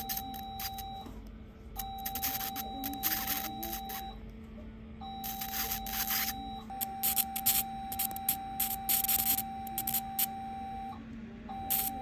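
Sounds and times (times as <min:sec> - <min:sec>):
steady high beep: 0:00.0 - 0:01.1, 0:01.8 - 0:04.2, 0:05.0 - 0:12.0.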